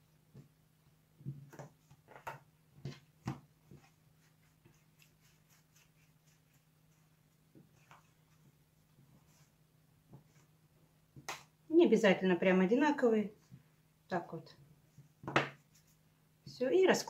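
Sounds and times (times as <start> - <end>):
dough pieces tapping on a mat: 1.2 - 3.8, 15.1 - 15.6
dough rubbed under palms: 2.7 - 11.4, 14.8 - 16.6.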